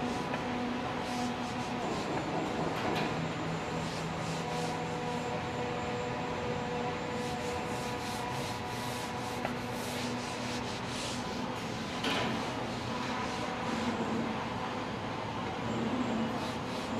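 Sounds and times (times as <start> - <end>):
machine hum with held tones: 0.0 - 16.9.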